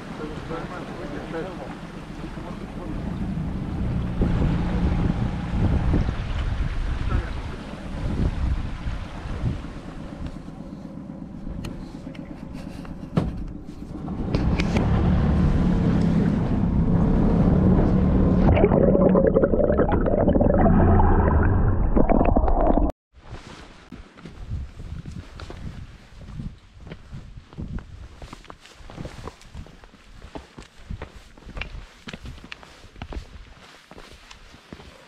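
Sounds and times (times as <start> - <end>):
water churning past hull: 0.0 - 12.0, 14.7 - 22.9
boat motor running: 0.4 - 20.6
wind buffeting microphone: 3.7 - 10.6.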